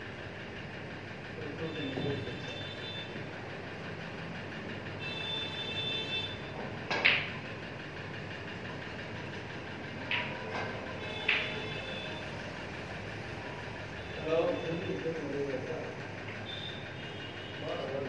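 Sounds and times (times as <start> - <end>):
steady background noise: 0.0 - 18.0
cue striking ball: 6.9 - 7.4, 10.1 - 11.6
snooker balls clacking: 6.9 - 7.4, 10.0 - 11.6.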